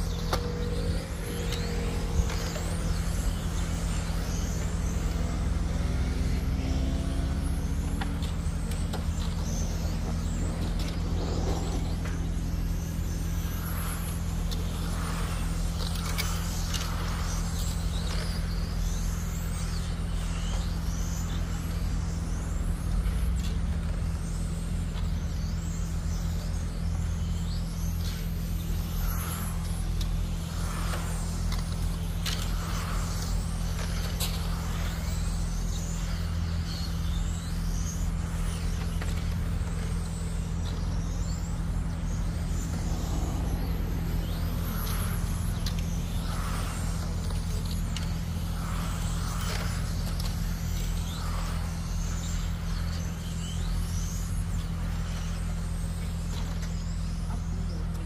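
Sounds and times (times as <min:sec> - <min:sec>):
steady low hum: 0:00.0 - 0:58.0
toy car motors whining: 0:27.0 - 0:54.4.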